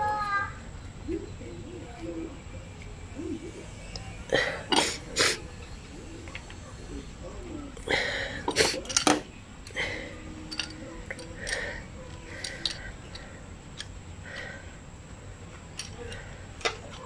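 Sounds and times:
small metallic clicks: 0:08.5 - 0:09.8, 0:10.4 - 0:14.7, 0:15.5 - 0:17.0.

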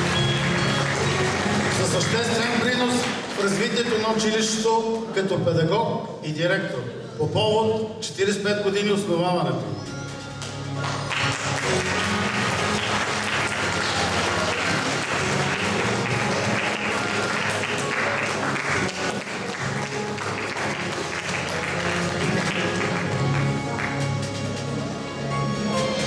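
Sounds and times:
instrumental music: 0:00.0 - 0:03.7, 0:09.7 - 0:26.0
audience applauding: 0:00.0 - 0:04.5, 0:10.4 - 0:24.9.

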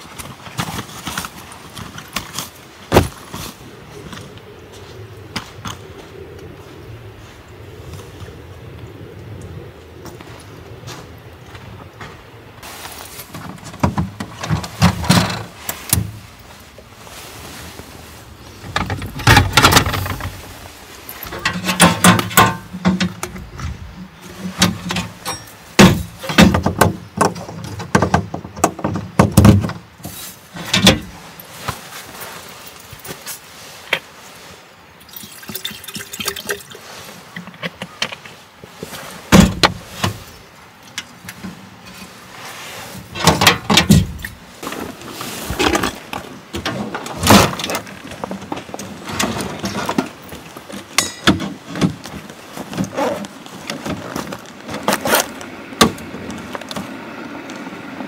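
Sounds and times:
water pouring into vessel: 0:35.0 - 0:36.8.

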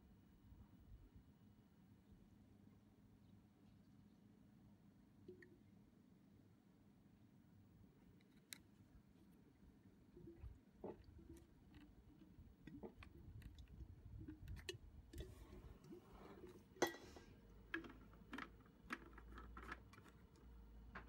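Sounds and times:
clicks and taps of handling plastic parts: 0:17.7 - 0:21.0.

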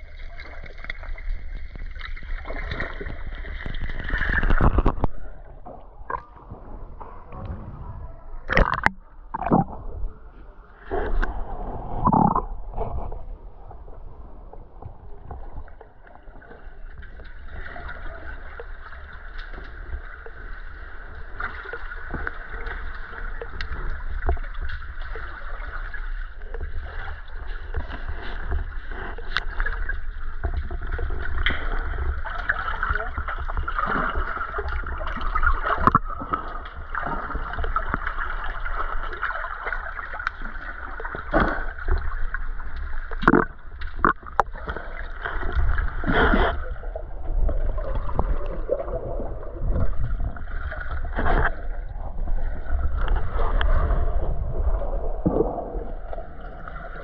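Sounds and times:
constant low rumble: 0:00.0 - 0:57.0
water sloshing and gurgling: 0:00.0 - 0:57.0.

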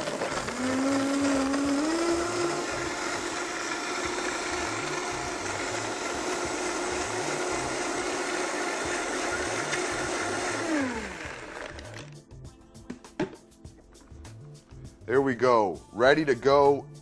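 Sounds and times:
blender running: 0:00.0 - 0:12.1.

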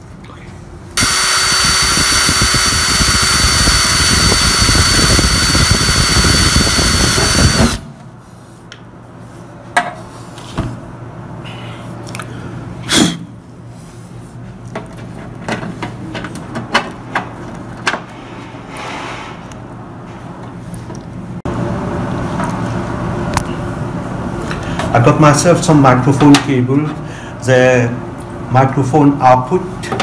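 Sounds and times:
electric drill whining: 0:01.0 - 0:07.8.

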